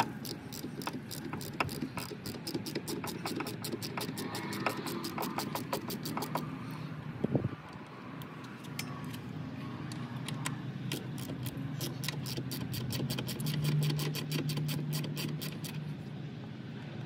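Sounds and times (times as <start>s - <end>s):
ratchet wrench clicking: 0.0s - 6.5s, 9.9s - 15.8s.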